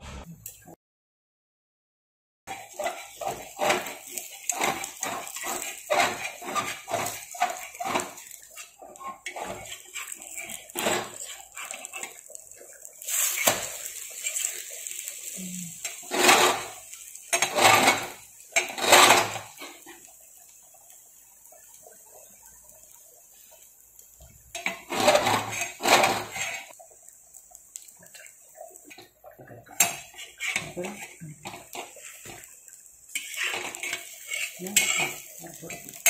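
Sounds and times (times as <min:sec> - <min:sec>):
metal spatula scraping a pan: 0:02.5 - 0:20.1, 0:24.5 - 0:26.8, 0:29.6 - 0:36.0.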